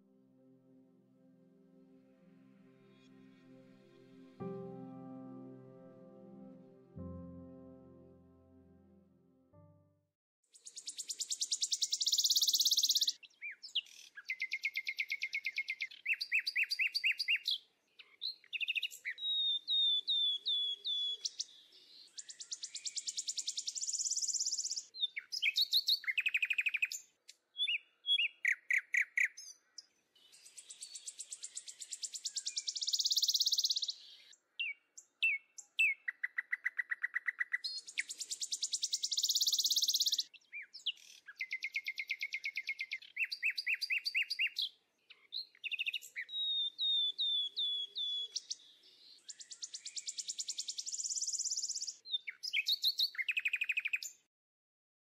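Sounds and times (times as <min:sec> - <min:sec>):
songbirds chirping: 0:10.6 - 0:54.3.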